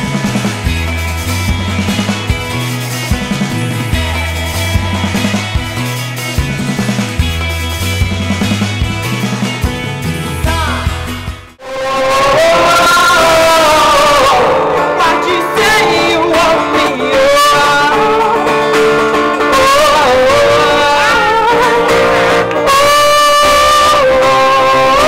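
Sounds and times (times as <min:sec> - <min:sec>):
acoustic guitar strumming: 0:00.0 - 0:25.0
person singing: 0:02.5 - 0:06.0, 0:09.7 - 0:25.0.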